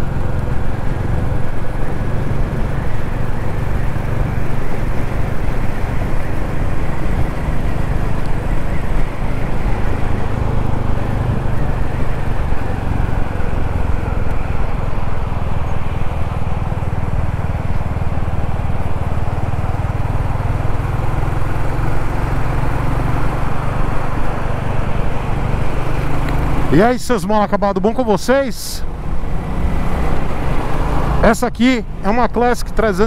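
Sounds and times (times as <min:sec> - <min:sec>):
wind noise: 0:00.0 - 0:20.8
motorcycle engine running: 0:00.0 - 0:33.0
road noise: 0:00.0 - 0:33.0.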